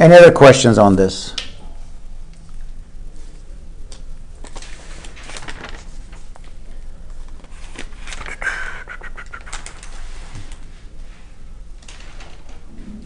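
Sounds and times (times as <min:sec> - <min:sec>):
rustling room noise: 0:00.0 - 0:13.0.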